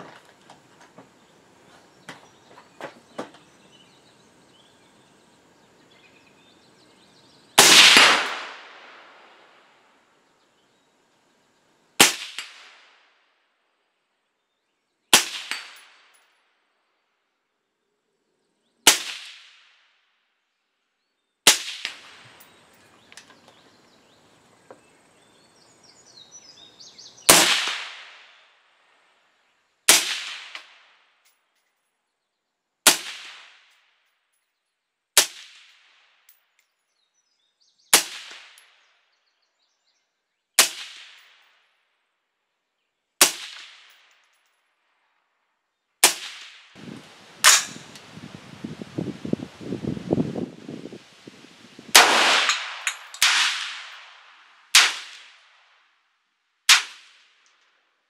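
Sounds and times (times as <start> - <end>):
suppressed rifle shots: 7.6 - 9.1, 47.4 - 47.9, 52.0 - 54.0.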